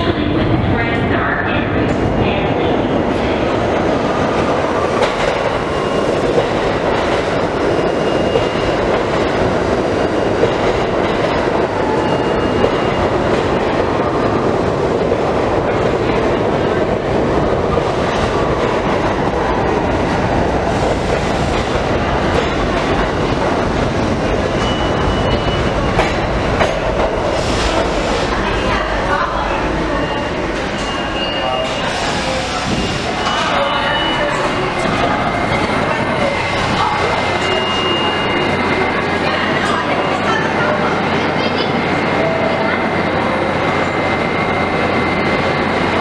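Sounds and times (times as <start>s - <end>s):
subway train wheels clattering: 0.0s - 46.0s.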